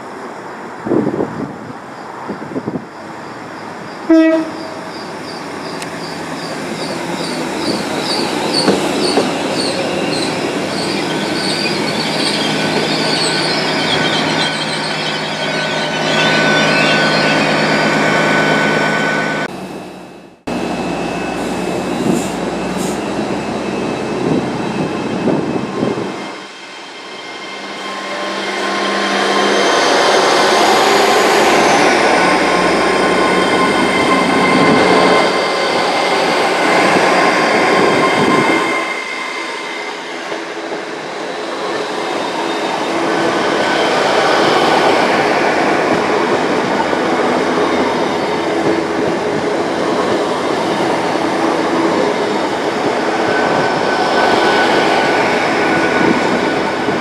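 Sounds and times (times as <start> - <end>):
train coaches rushing past: 1.8 - 19.9, 20.5 - 57.0
train horn blast: 4.1 - 4.8.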